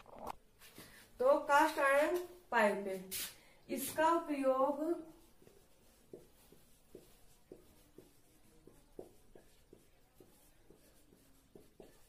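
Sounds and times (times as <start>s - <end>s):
marker squeaking on whiteboard: 5.1s - 12.0s.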